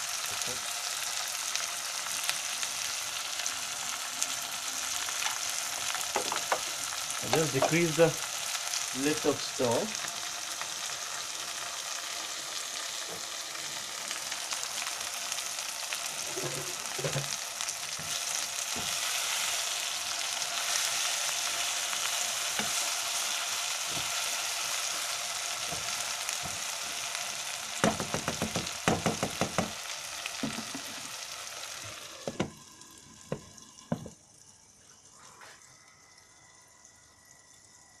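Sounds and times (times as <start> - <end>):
vegetables sizzling in a wok: 0.0 - 36.9
glass lid knocking on pan: 6.2 - 6.7, 7.4 - 7.8.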